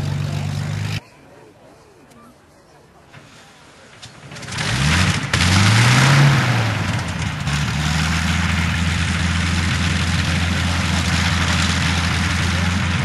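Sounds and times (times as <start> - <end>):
piston aircraft engine idling: 6.7 - 13.0.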